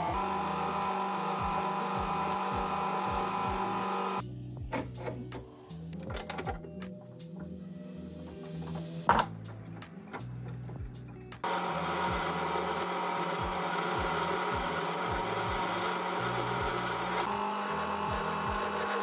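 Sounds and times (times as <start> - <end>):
metal lathe cutting whine: 0.0 - 4.2, 11.5 - 19.0.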